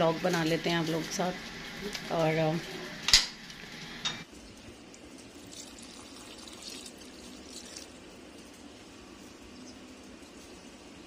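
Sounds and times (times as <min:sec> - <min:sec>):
water trickling into soil: 0:04.5 - 0:08.0.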